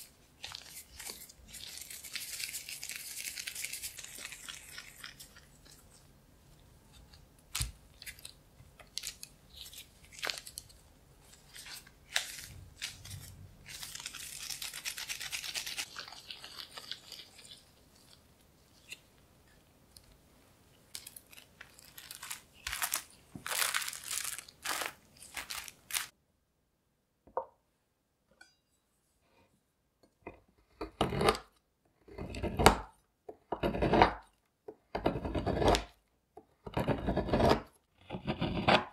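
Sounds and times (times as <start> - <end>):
plastic gloves and paper rustling: 0.0 - 6.1, 7.5 - 19.0, 20.8 - 26.2
knife scraping chocolate on board: 30.3 - 32.8, 33.4 - 34.3, 34.9 - 36.0, 36.6 - 38.9.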